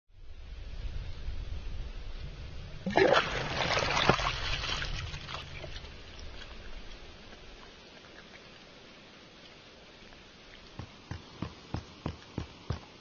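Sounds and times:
water splattering and sputtering: 2.8s - 9.8s.

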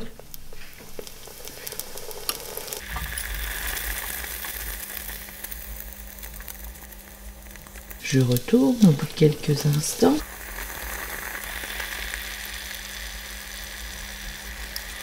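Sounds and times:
dough sizzling in hot oil: 0.0s - 15.0s
low steady hum: 0.0s - 15.0s.

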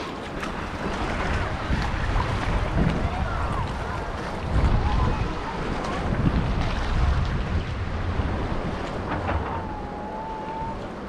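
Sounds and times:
surf washing on beach: 0.0s - 11.0s
wind buffeting microphone: 0.0s - 11.0s.

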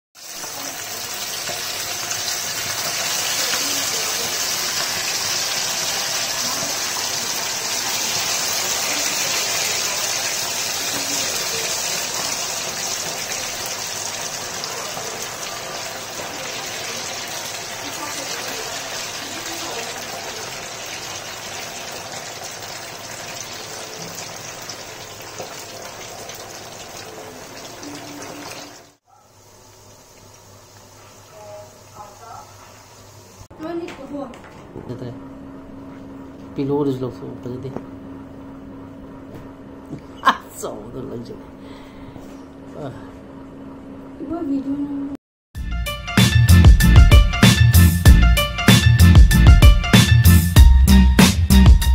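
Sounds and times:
chicken sizzling in hot oil: 0.2s - 33.5s.

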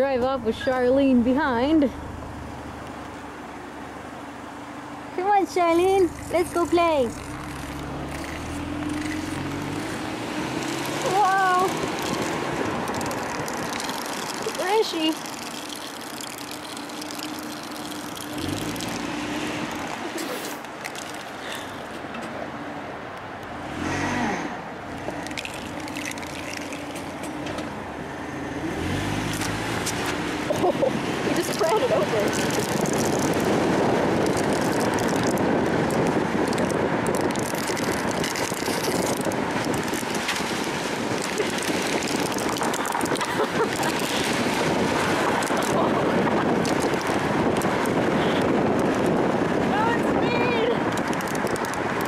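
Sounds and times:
car road noise: 0.0s - 52.0s
tyres rolling on asphalt: 0.0s - 52.0s
phone scraping over asphalt: 5.4s - 22.0s.

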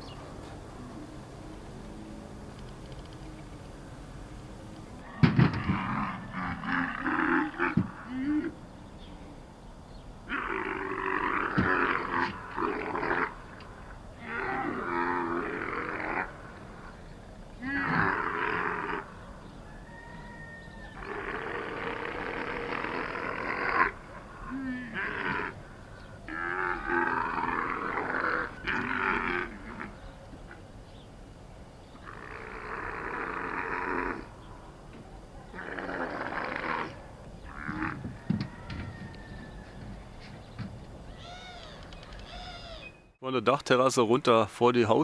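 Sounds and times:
camels bellowing: 4.6s - 8.6s, 10.3s - 30.6s, 32.0s - 34.7s, 35.4s - 42.8s.

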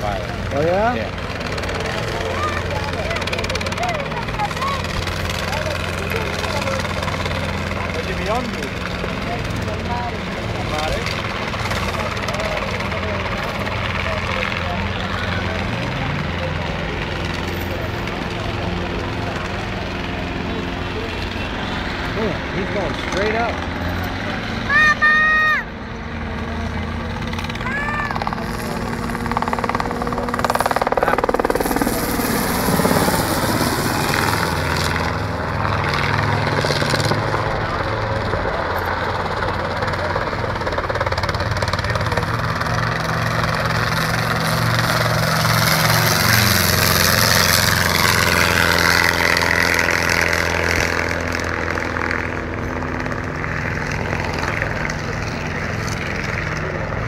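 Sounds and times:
helicopter rotor and engine: 0.0s - 57.0s.

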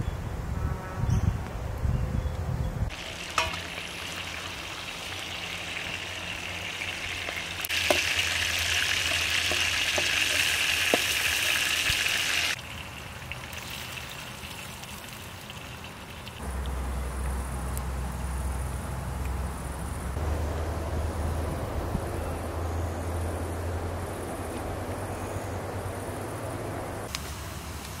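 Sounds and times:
food sizzling in hot oil: 2.9s - 16.4s.

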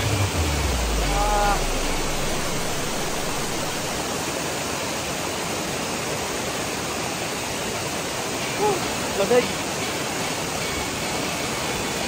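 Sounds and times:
man vocal sound: 0.0s - 4.0s
river churning over rocks: 0.0s - 12.0s
waterfall rushing: 0.0s - 12.0s.

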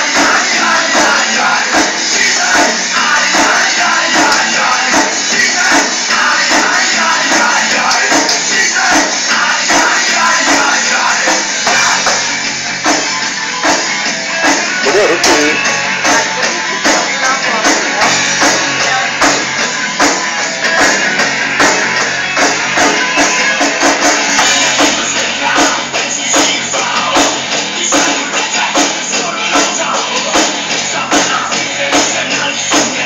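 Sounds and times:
electric guitar: 0.0s - 33.0s
electronic drum beat: 14.5s - 18.6s.

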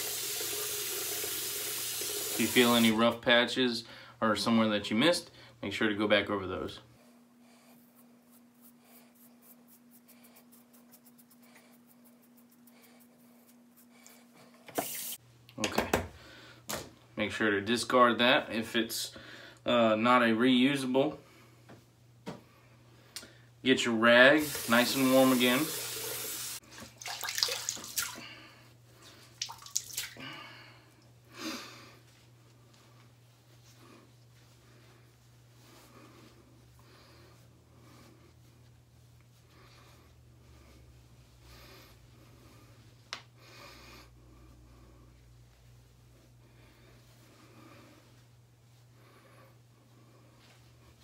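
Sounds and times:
razor scraping stubble: 7.7s - 15.2s
water dripping into sink: 29.4s - 30.2s.

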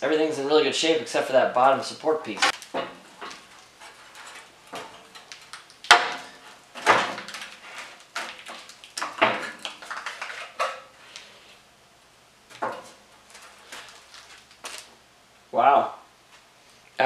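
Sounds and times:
metal grille clanking and scraping: 2.4s - 8.0s.

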